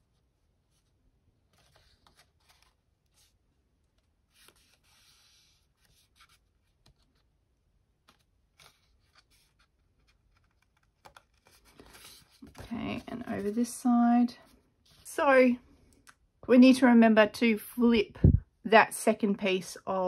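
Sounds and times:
card stock rustling: 1.4 - 13.8.

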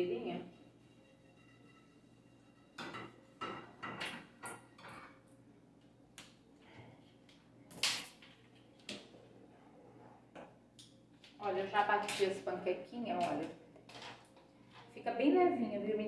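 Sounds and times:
frying pan and utensils clattering: 0.5 - 5.2.

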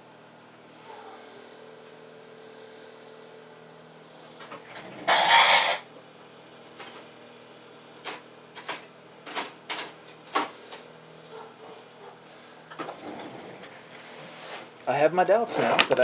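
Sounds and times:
steady low hum: 0.0 - 15.6
loud scraping rustle: 4.7 - 5.9, 12.9 - 14.7.

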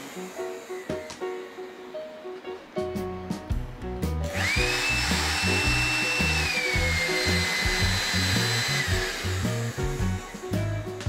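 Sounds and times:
stick vacuum motor whining: 0.0 - 1.8, 4.2 - 11.0
background music: 0.0 - 11.0.

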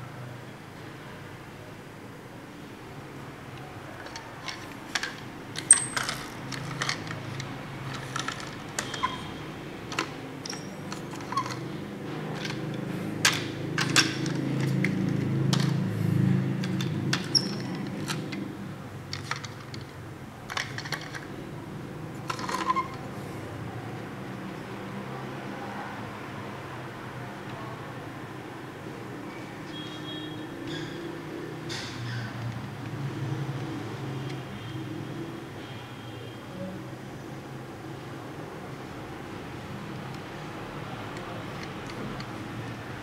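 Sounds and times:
toys rolling on a table: 4.0 - 11.7, 12.3 - 15.9, 20.5 - 21.3, 22.2 - 23.1.

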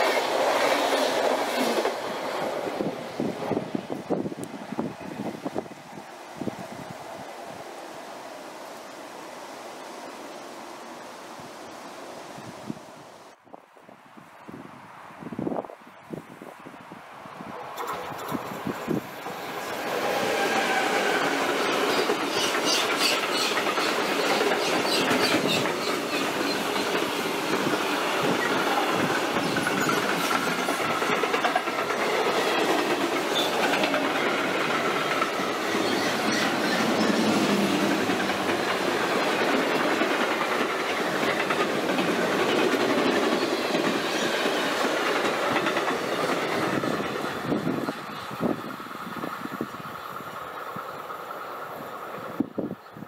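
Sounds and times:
passenger train passing: 0.0 - 13.4, 17.0 - 53.0
wheels clattering over rail joints: 17.6 - 49.6.

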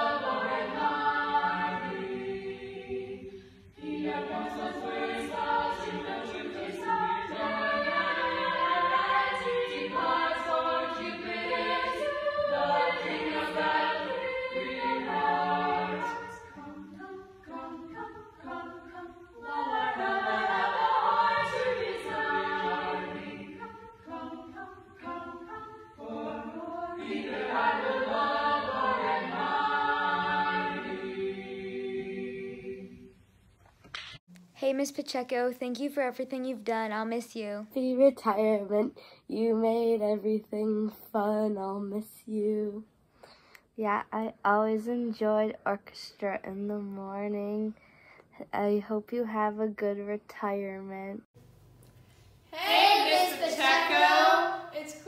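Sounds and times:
small choir singing in harmony: 0.0 - 33.3, 52.5 - 55.0.

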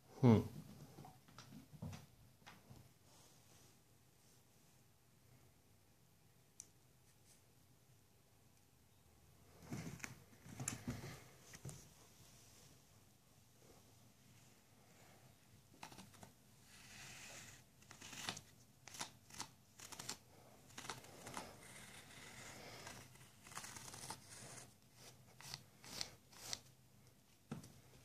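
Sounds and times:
paper tube scraping on rug: 15.8 - 26.7.

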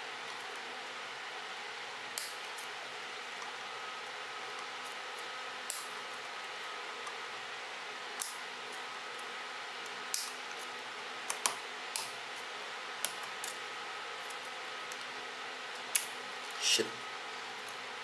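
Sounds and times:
small scissors snipping wires: 5.7 - 5.9, 8.2 - 8.4, 10.1 - 10.4, 11.3 - 12.1.

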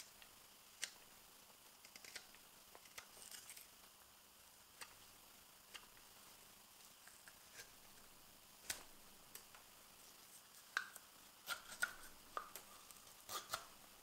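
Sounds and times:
knife carving wood shavings: 1.8 - 3.8, 6.9 - 9.6, 10.2 - 13.8.

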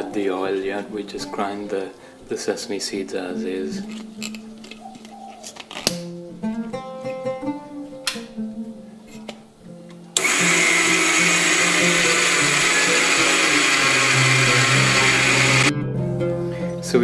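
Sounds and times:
light guitar music: 0.0 - 10.2, 14.2 - 17.0
spice grinder whirring: 10.2 - 15.7.

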